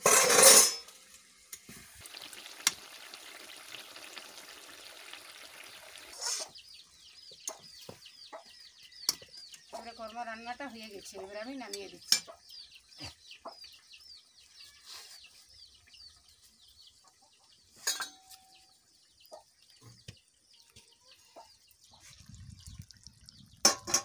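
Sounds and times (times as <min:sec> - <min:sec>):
birds chirping: 0:02.0 - 0:24.0
metallic clink of pan: 0:17.8 - 0:18.4.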